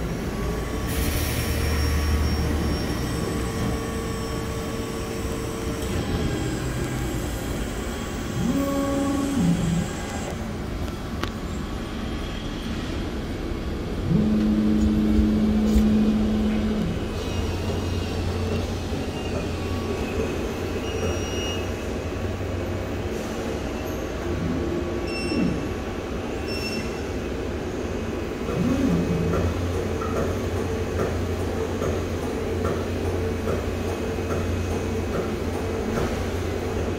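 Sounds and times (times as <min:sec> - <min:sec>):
vending machine humming: 0:00.0 - 0:10.8, 0:13.4 - 0:20.7.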